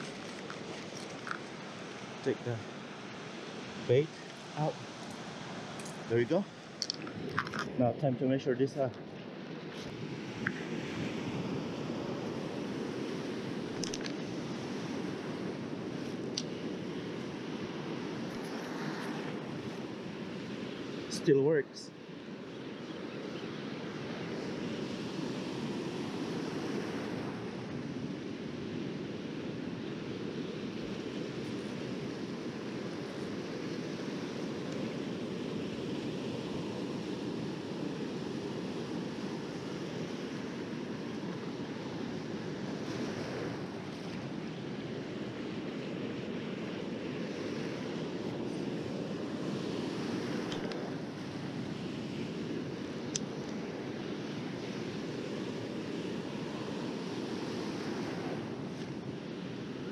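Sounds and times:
wind on the microphone: 0.0 - 21.2
ocean surf washing in: 0.0 - 59.9.

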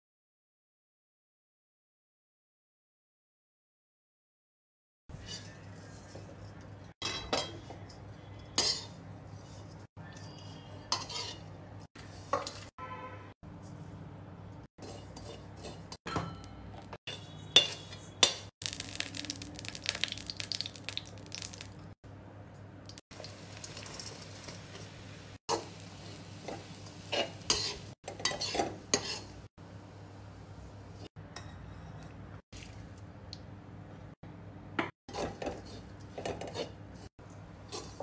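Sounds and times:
ghee crackling and sizzling: 5.1 - 12.8, 13.6 - 16.1, 16.7 - 22.0, 22.8 - 31.2, 35.1 - 38.0
spoon scraping metal pan: 5.2 - 6.3, 8.4 - 9.9, 10.6 - 12.7, 14.8 - 18.5, 25.5 - 29.5, 35.1 - 37.1, 37.7 - 38.0
dry ingredients poured and stirred: 18.6 - 21.9.

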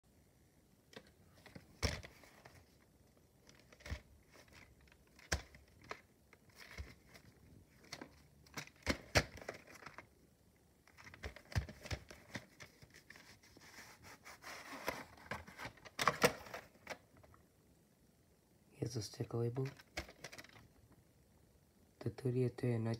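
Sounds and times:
cassette case clicks and knocks: 7.8 - 10.0, 14.9 - 17.0.

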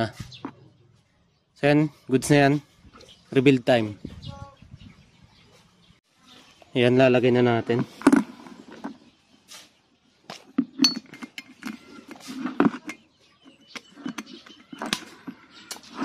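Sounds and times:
metal engine parts clinking: 10.7 - 15.2.

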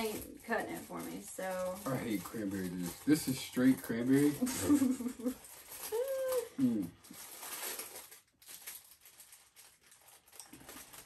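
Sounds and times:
person humming or groaning: 5.9 - 7.0.

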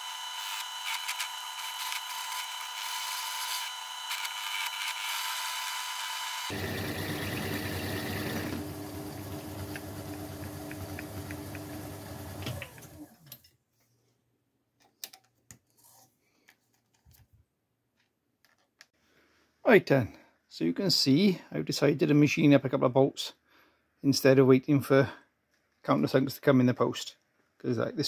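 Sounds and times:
cutting tool scraping metal: 0.0 - 6.6
lathe motor hum: 0.0 - 13.2
lathe spinning down: 5.6 - 13.2.

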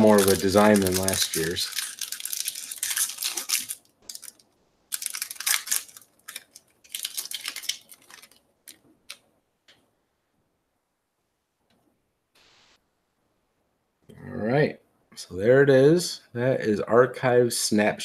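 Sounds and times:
plastic wrapper crinkling: 0.0 - 9.2.

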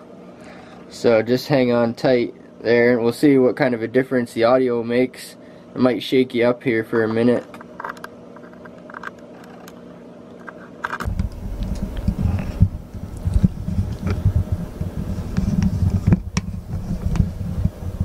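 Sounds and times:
microphone handling rumble and knocks: 11.0 - 18.0.

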